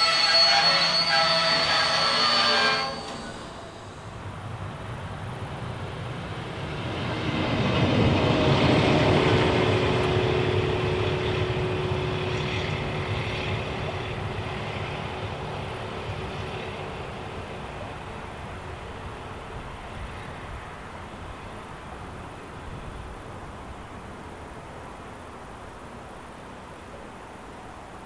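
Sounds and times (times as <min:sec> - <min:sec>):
locomotive whine: 0:00.0 - 0:21.6
diesel locomotive engine rumble: 0:00.0 - 0:24.3.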